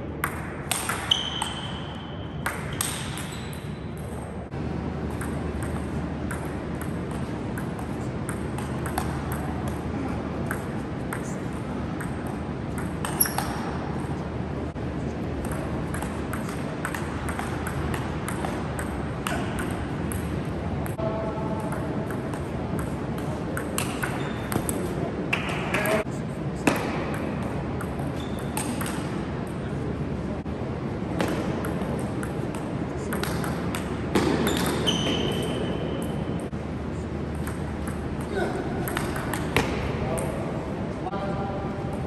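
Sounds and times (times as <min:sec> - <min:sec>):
steady low hum: 0:00.0 - 0:42.0
ping pong ball clicking off paddles: 0:00.2 - 0:04.2, 0:05.0 - 0:13.8, 0:15.4 - 0:26.0, 0:26.6 - 0:29.6, 0:31.2 - 0:36.6, 0:37.3 - 0:40.3
ball bouncing on table: 0:05.1 - 0:09.8, 0:10.4 - 0:13.7, 0:15.4 - 0:25.9, 0:37.4 - 0:40.3.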